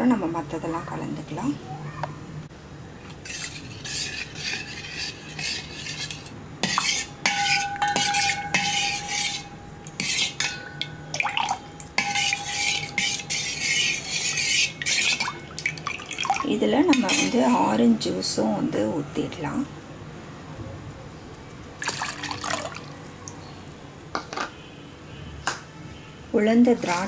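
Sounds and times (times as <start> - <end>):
metal spoon scraping a pot: 3.0 - 15.8, 16.8 - 17.8
spoon knocking ringing pot: 7.3 - 9.5, 10.4 - 13.4.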